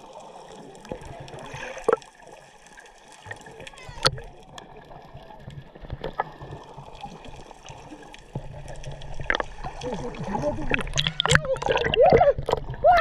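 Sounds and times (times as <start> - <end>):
underwater rumble of moving water: 0.0 - 13.0
bubble clicks and pops: 1.4 - 2.1, 9.1 - 10.0, 10.6 - 12.8.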